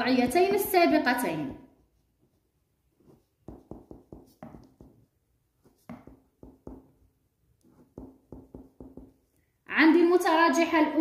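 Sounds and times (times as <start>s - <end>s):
pen writing on paper: 2.2s - 7.0s, 7.6s - 9.3s.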